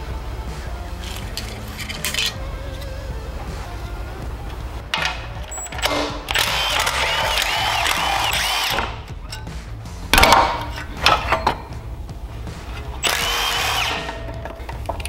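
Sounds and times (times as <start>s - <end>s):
background music: 0.0s - 15.0s
cordless power driver running: 3.2s - 9.0s, 13.0s - 15.0s.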